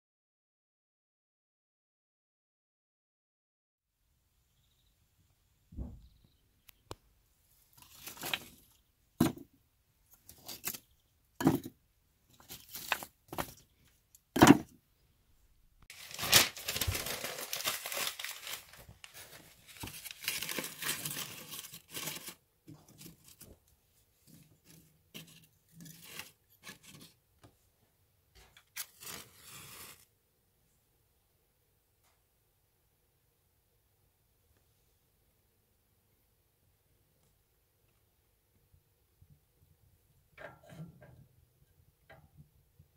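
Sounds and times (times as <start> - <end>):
paper crumpled and torn: 15.9 - 22.4, 28.7 - 30.0.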